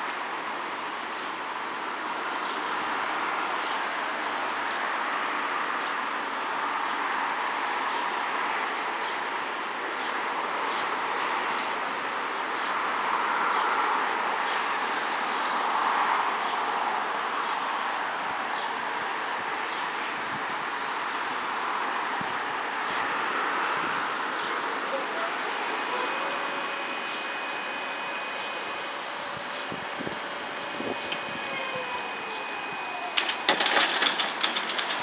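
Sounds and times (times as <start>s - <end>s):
steady rushing noise: 23.5s - 35.0s.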